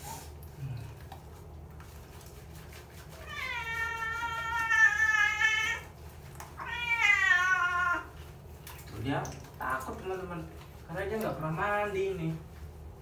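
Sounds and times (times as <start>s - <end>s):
cat meowing: 3.2s - 5.9s, 6.6s - 8.2s.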